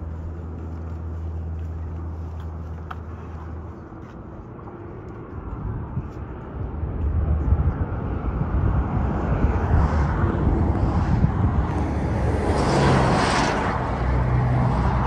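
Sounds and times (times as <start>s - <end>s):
highway traffic rumble: 0.0s - 15.0s
vehicle passing close: 7.2s - 15.0s.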